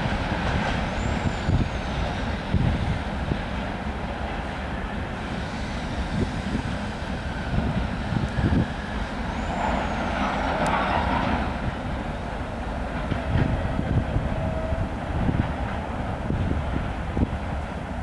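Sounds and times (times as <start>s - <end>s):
freight train rolling on rails: 0.0s - 18.0s
hiss: 4.7s - 12.2s.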